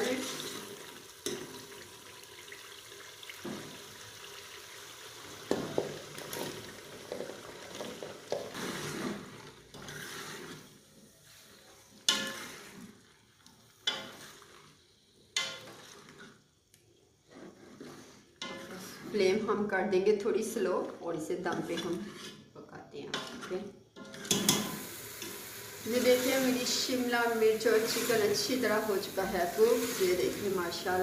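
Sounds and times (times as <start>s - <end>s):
chicken sizzling in a pot: 0.0s - 16.6s, 23.3s - 31.0s
metal spoon scraping a pot: 8.5s - 13.0s, 15.4s - 16.4s, 17.2s - 19.6s, 21.4s - 22.5s, 23.1s - 24.7s.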